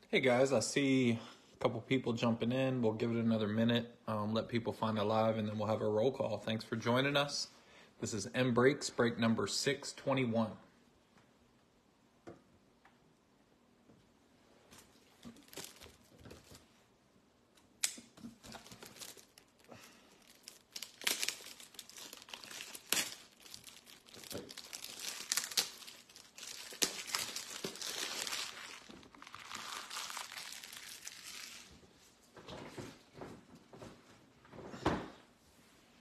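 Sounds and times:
crinkly material crackling: 0:14.7 - 0:16.9, 0:18.3 - 0:33.6.

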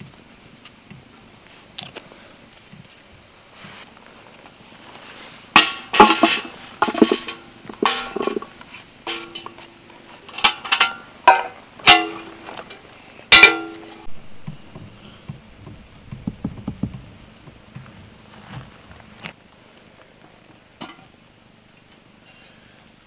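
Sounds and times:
vegetables clanking in metal pot: 0:05.6 - 0:08.5, 0:09.1 - 0:09.6.

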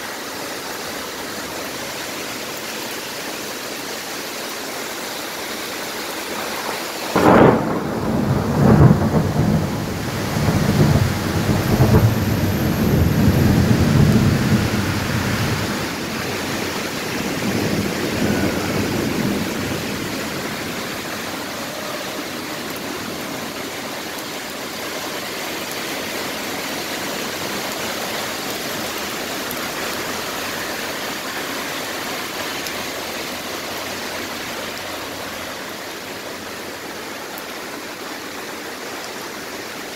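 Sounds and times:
heavy rain on a street: 0:00.0 - 0:39.9
thunder rumbling: 0:06.4 - 0:24.6.

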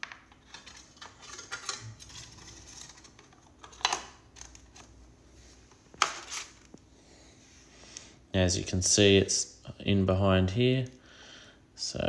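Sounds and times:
bracket scraping and clicking: 0:00.3 - 0:04.9.

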